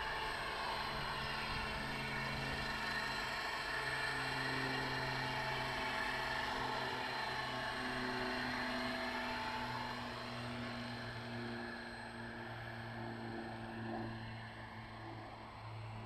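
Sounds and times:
rc helicopter motor whine: 0.0s - 16.0s.

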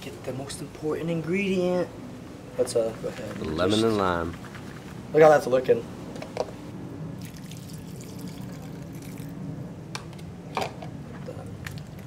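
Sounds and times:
juice splashing into a bowl: 7.2s - 9.4s.

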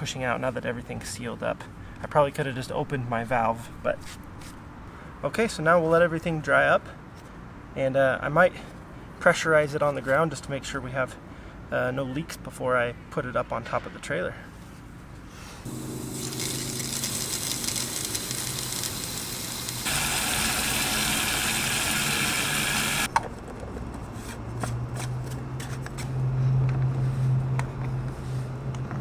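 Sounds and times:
water rushing into tank: 15.8s - 23.1s.

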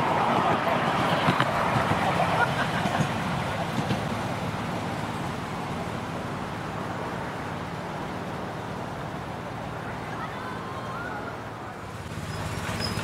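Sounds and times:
train wheels rumbling on rail: 0.0s - 9.8s.

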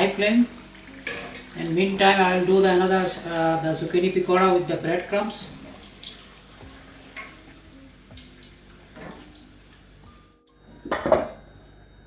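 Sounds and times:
soft background music: 0.0s - 12.0s
oil dripping and strainer clinking: 0.9s - 3.2s.

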